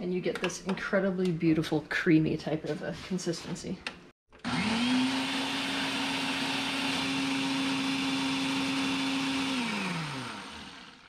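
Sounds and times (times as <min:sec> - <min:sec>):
blender motor running: 0:04.4 - 0:11.0.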